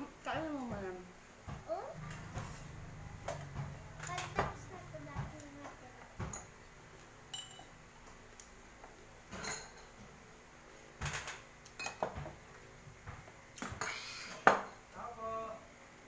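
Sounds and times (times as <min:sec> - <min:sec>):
glass and tableware clinking: 0:06.2 - 0:06.6, 0:07.3 - 0:07.8, 0:09.3 - 0:10.0, 0:11.1 - 0:12.2.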